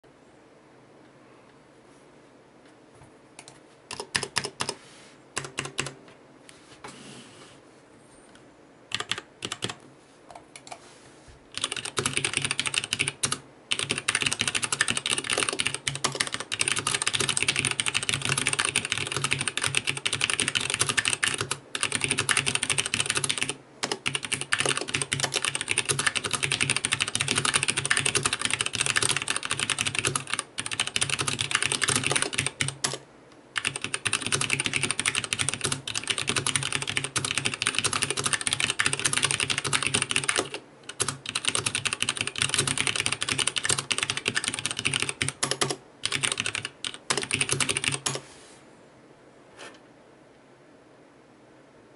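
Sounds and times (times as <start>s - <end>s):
mechanical keyboard typing: 3.4s - 4.8s, 5.4s - 6.0s, 8.9s - 9.8s, 11.5s - 33.0s, 33.6s - 48.2s.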